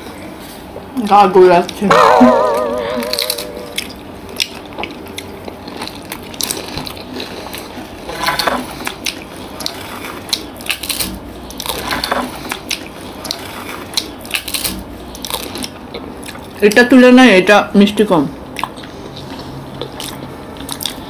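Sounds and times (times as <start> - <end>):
wet chewing mouth clicks: 18.5 - 21.0.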